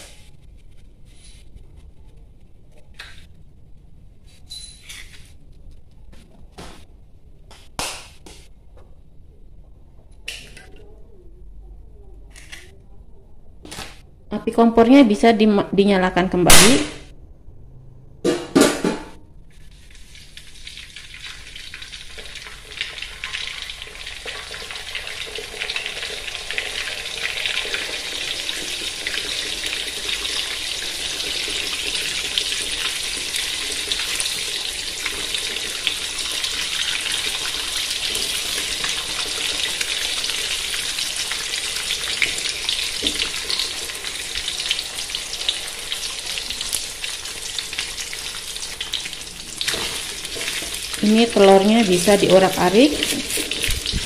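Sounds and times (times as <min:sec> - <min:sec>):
eggs sizzling in oil: 0:19.6 - 0:54.0.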